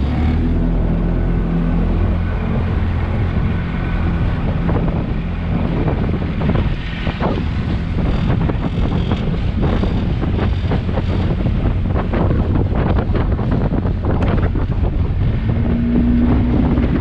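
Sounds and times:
outboard motor running: 0:00.0 - 0:17.0
water splashing along hull: 0:00.0 - 0:17.0
wind buffeting microphone: 0:00.0 - 0:17.0.

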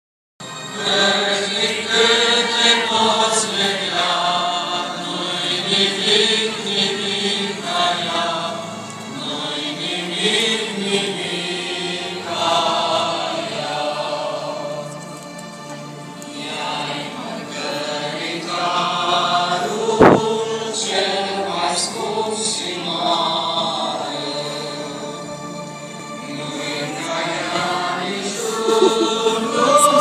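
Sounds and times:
group of voices chanting: 0:26.5 - 0:30.0.

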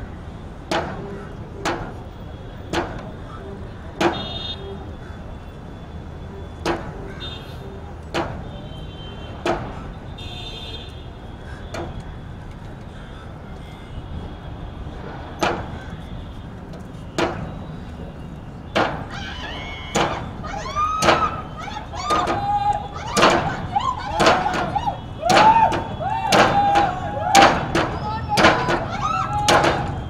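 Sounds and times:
outdoor background noise: 0:00.0 - 0:30.0
knocks on wooden planks: 0:02.7 - 0:03.2, 0:04.0 - 0:04.4, 0:09.4 - 0:09.8, 0:15.4 - 0:15.8, 0:17.1 - 0:17.6, 0:18.7 - 0:19.1, 0:19.9 - 0:21.4, 0:22.0 - 0:30.0
high rising and falling calls: 0:19.0 - 0:30.0.

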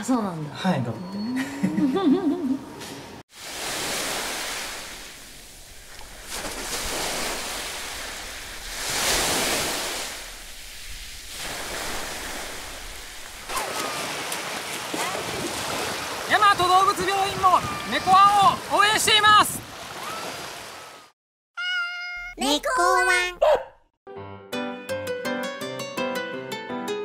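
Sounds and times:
waves washing onto beach: 0:03.3 - 0:21.1
splashing through shallow water: 0:03.4 - 0:21.0.

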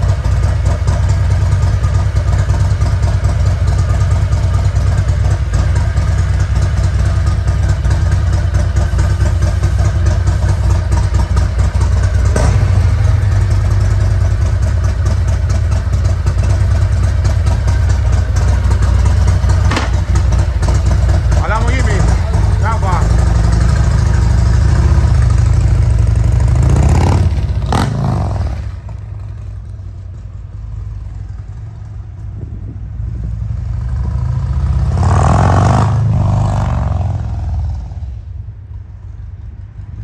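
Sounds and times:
motorcycle engine idling: 0:00.0 - 0:34.3
short sharp knock: 0:19.6 - 0:20.1.

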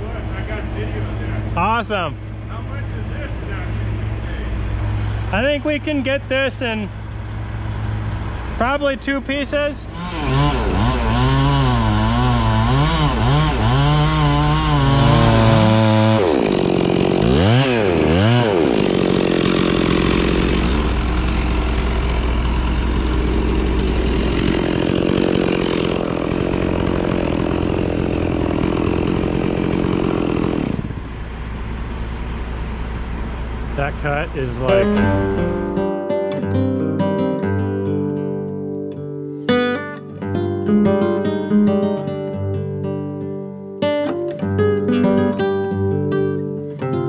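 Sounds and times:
chainsaw cutting tree trunk: 0:09.9 - 0:31.2, 0:34.8 - 0:35.7.

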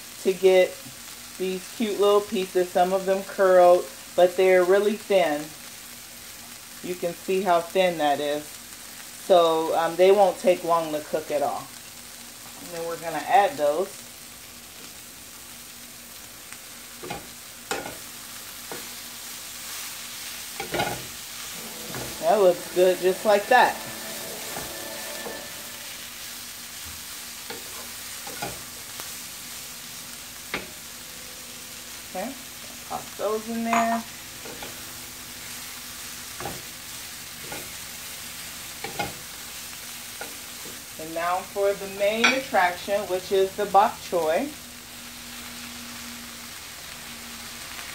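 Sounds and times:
vegetables sizzling in oil: 0:00.0 - 0:47.9
wooden spatula scraping pan: 0:20.6 - 0:26.1.

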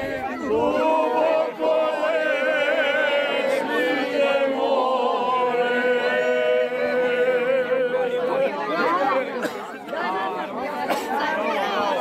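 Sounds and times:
group singing unaccompanied: 0:00.0 - 0:09.6.

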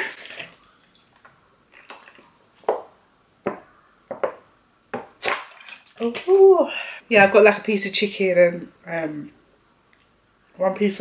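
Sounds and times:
person gulping water: 0:01.7 - 0:02.5.

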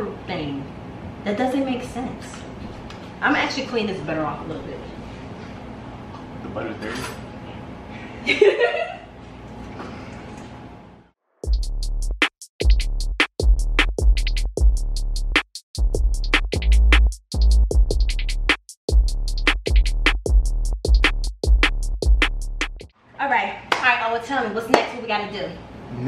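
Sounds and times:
drum machine beat: 0:11.4 - 0:22.9.

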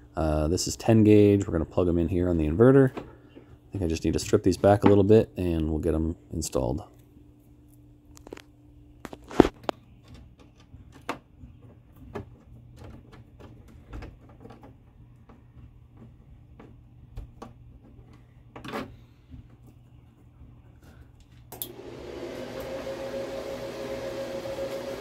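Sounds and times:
small clicks and knocks of wires: 0:07.7 - 0:20.2.

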